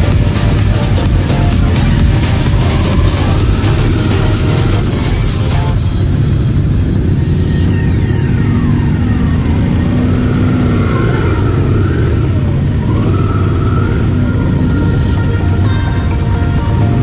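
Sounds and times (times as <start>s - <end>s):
high sliding tone: 0.0s - 17.0s
motorcycle engine rumbling: 0.0s - 17.0s
wavering high tones: 0.0s - 17.0s.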